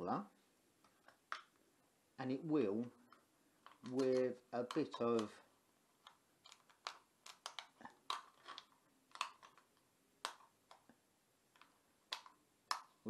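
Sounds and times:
aluminium can crinkling: 2.8 - 10.9, 11.5 - 13.0.

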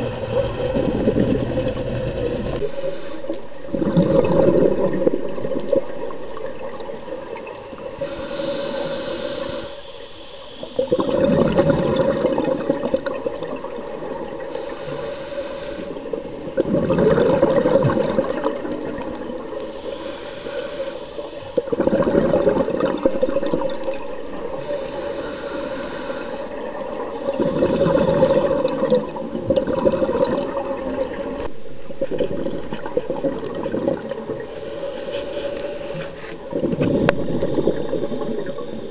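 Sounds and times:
exhaled bubbles rushing: 0.0 - 2.8, 3.4 - 7.6, 10.8 - 14.4, 16.3 - 19.6, 21.6 - 24.7, 26.5 - 34.5, 36.5 - 38.9
diver inhaling through regulator: 1.4 - 4.8, 8.0 - 11.1, 14.4 - 16.2, 19.6 - 22.2, 24.4 - 26.8, 34.3 - 38.9.

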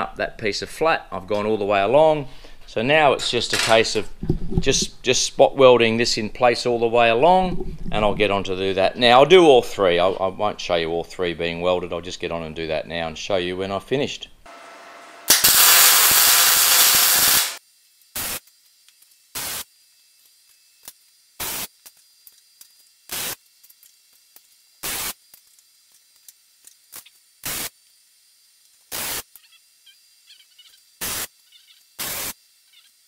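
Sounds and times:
welding arc crackling: 14.5 - 29.8, 30.6 - 33.0
short weld tacks: 15.3 - 17.6, 20.5 - 27.8, 28.7 - 29.5, 31.0 - 32.4.

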